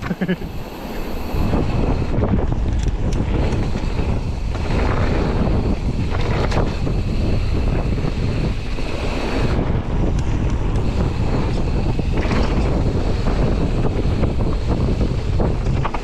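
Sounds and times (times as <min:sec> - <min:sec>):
wind buffeting microphone: 0:00.0 - 0:16.0
bike clicks and knocks: 0:02.4 - 0:07.0, 0:09.8 - 0:16.0.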